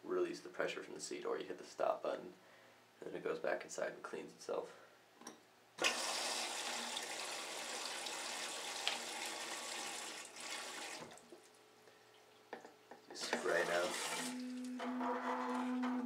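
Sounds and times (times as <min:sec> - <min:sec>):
faint water trickle: 0:06.9 - 0:14.7.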